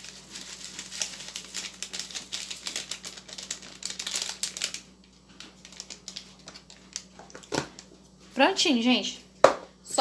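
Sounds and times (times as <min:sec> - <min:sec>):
dried herbs crackling into a pot: 0:00.0 - 0:07.9
plastic packet crinkle: 0:00.0 - 0:07.9.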